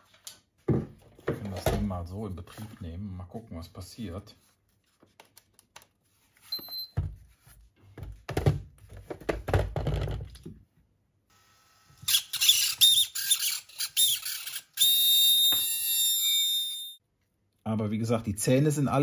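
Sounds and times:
servo high-pitched squeal: 12.1s - 17.0s.

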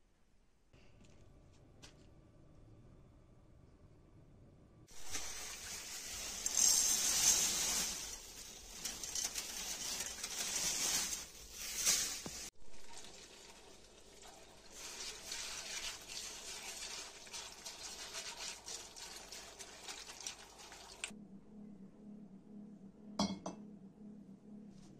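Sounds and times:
tap water running and splashing: 4.9s - 7.9s, 12.2s - 21.1s
hands stirring wet grains: 4.9s - 21.1s.

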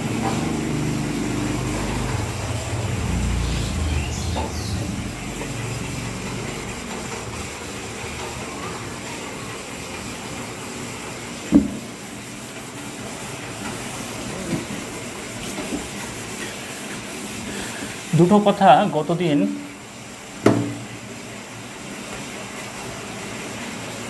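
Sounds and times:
steady background noise: 0.0s - 24.0s
sharp knock: 20.4s - 20.8s.

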